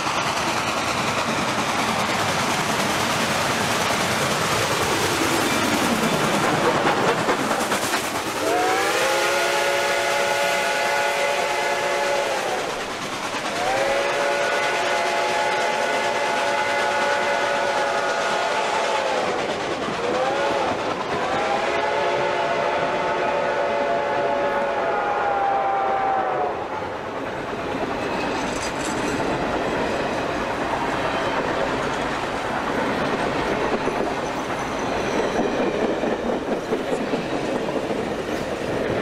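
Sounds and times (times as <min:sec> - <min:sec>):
steam locomotive chime whistle: 0:08.4 - 0:12.8, 0:13.5 - 0:19.4, 0:20.1 - 0:26.8.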